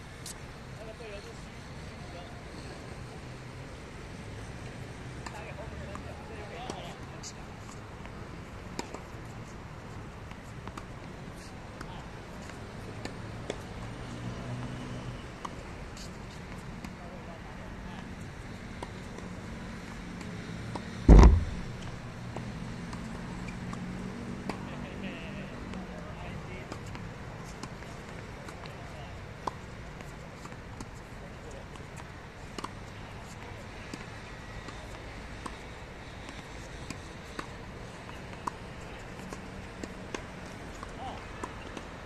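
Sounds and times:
road traffic hum: 0.0 - 42.0
tennis balls hit and bouncing: 5.2 - 9.3, 18.8 - 23.8, 36.2 - 42.0
tennis balls struck with racquets: 20.7 - 22.0
loud low thump: 21.1 - 22.0.

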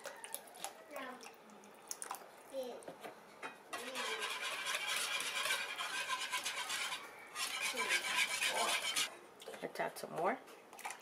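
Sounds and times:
wire whisk scraping frying pan: 3.8 - 9.1.

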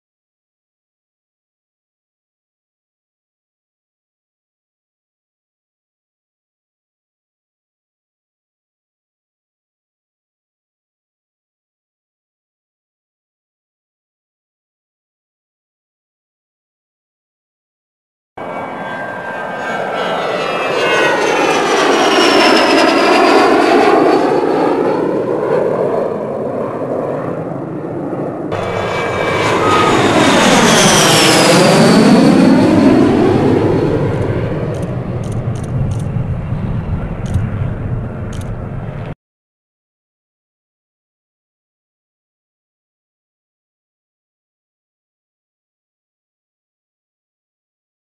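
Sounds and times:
jet passing with turbine whine: 18.4 - 39.2.

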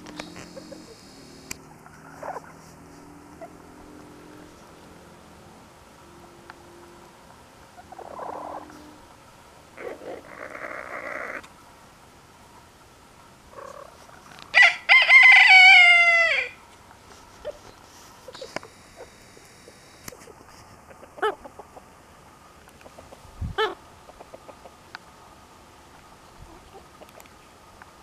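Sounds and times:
soft rough rooster sounds: 0.0 - 4.7, 7.7 - 9.1
rooster crowing: 14.5 - 16.6.

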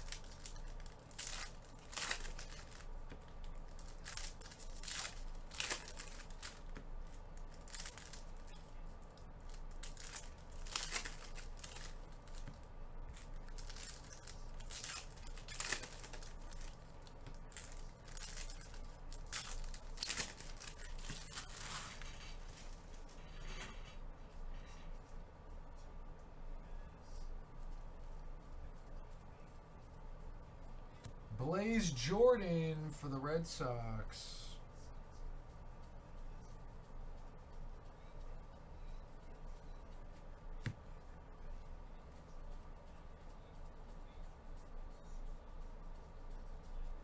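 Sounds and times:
foil wrappers tearing and crinkling: 0.0 - 23.6.

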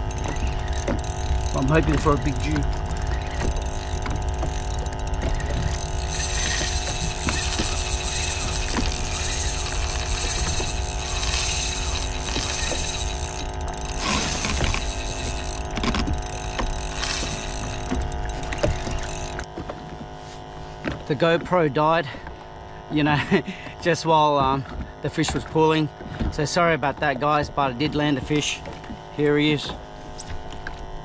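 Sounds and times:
jet ski engine idling: 0.0 - 19.6
water noise: 0.0 - 19.6
wind: 0.0 - 31.0.

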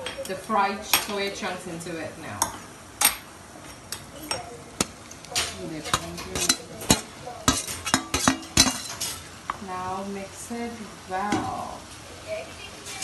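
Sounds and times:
oil sizzling: 0.0 - 13.0
metal spoon scraping cookware: 4.8 - 9.2.

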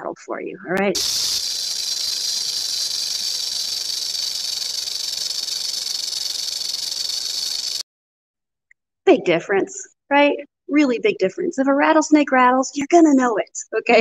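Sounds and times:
rattlesnake rattling: 0.8 - 7.8.

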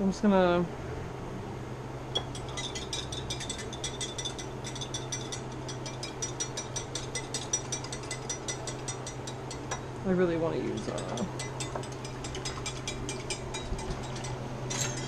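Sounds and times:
whisk clicking against bowl: 2.3 - 9.8, 10.7 - 14.4.

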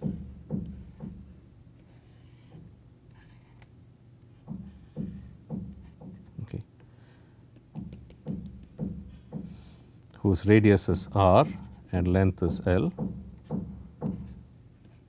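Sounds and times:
stylus tapping on tablet: 0.0 - 1.4, 4.4 - 6.4, 7.5 - 9.6, 12.4 - 14.4
low electrical hum: 0.0 - 15.0.

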